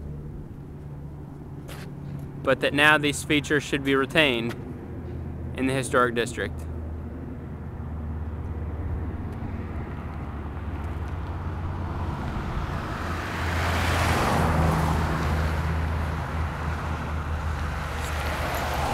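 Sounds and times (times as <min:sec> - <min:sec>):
steady low rumble: 0:00.0 - 0:13.0
car passing by: 0:08.0 - 0:18.9.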